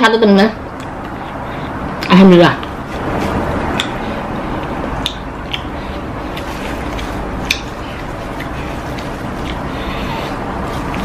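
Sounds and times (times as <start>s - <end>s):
person chewing: 2.6s - 11.0s.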